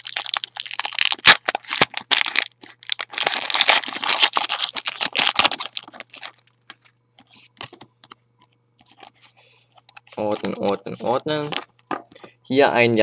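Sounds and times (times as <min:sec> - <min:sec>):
foil wrapper crinkling: 0:00.0 - 0:06.9
cards rustling and clicking: 0:08.8 - 0:12.0.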